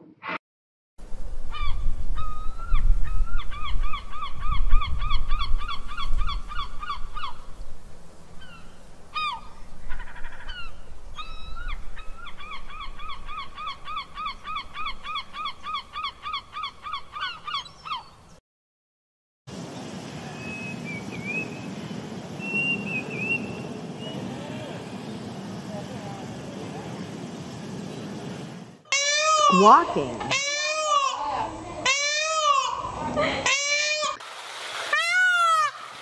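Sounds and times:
wind rumble on microphone: 1.0 - 8.8
seabirds ringing calls: 8.4 - 18.2, 28.8 - 34.2.

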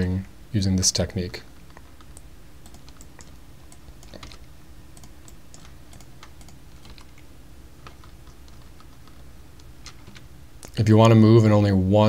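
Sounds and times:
faint low hum: 0.0 - 12.0
keyboard and mouse clicks: 1.6 - 10.8.

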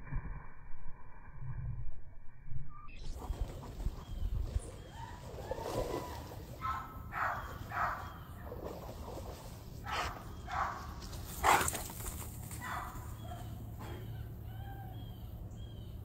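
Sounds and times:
dog barking: 6.6 - 8.2, 9.8 - 11.7, 12.6 - 14.2.

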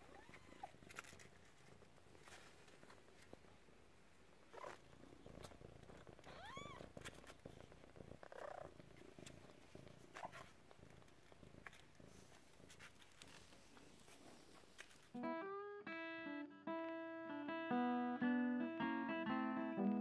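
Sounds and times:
cat purring: 0.0 - 15.1.

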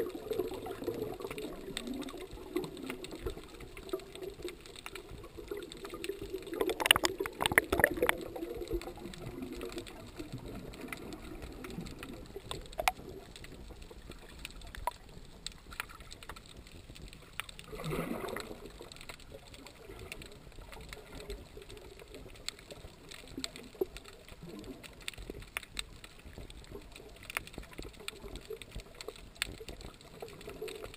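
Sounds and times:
splashes: 0.0 - 13.2, 17.6 - 25.3
bubbling and clicks: 0.0 - 30.9
muffled underwater water movement: 0.0 - 30.9.

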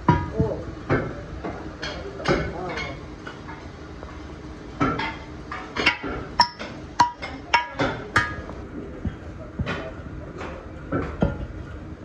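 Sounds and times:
metal casting ringing: 5.8 - 8.5.

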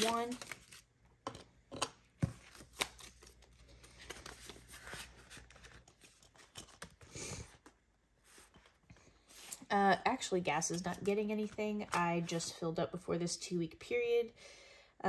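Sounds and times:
banknotes rustling: 0.0 - 0.8.

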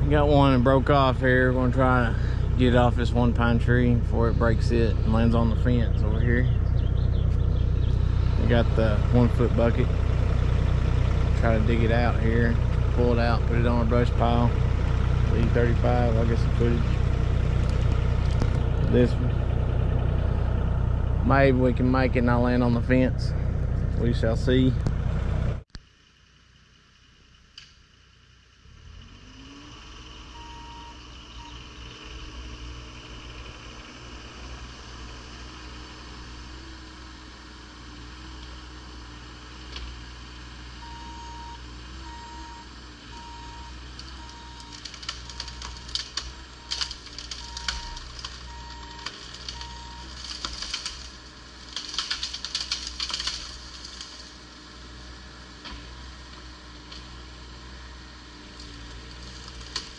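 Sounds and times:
excavator diesel engine running: 0.0 - 27.5, 28.2 - 59.9
branches cracking and snapping: 11.6 - 20.6, 43.8 - 54.7, 55.6 - 57.4, 58.4 - 59.9
alarm beeps: 30.4 - 31.6, 40.8 - 44.7.

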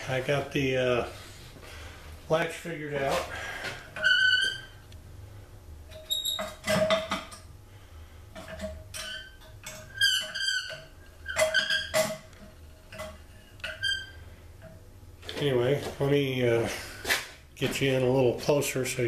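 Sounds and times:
metal lid squeaking and clanking: 4.0 - 4.8, 5.9 - 7.2, 8.9 - 12.3, 12.9 - 14.2.

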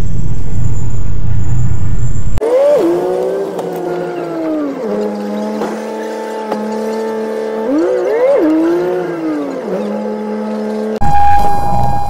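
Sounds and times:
bus engine rumble: 0.0 - 2.4
high engine whine: 0.0 - 12.0.

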